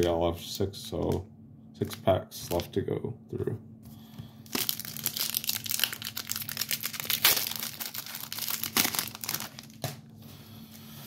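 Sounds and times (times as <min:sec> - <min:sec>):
card pack wrapper crinkling: 0:04.4 - 0:10.0.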